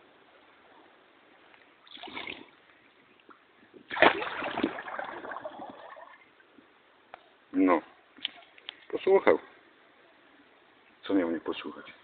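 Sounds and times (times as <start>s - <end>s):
splashing in shallow river water: 3.9s - 6.0s.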